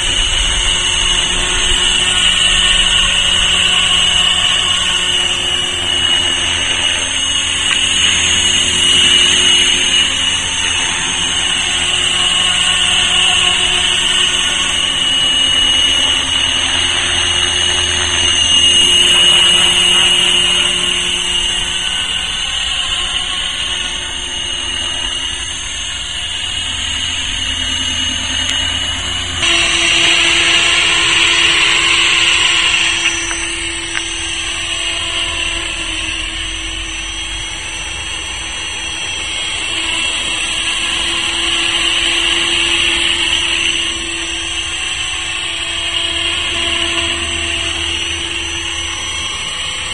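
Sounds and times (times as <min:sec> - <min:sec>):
high-pitched motor whine: 0:00.0 - 0:49.9
rotor blades rushing: 0:00.0 - 0:49.9.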